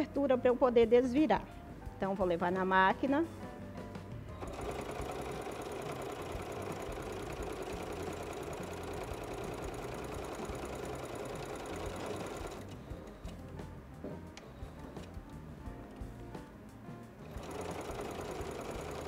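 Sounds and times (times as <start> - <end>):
sewing machine stitching: 4.4 - 12.8, 17.2 - 19.0.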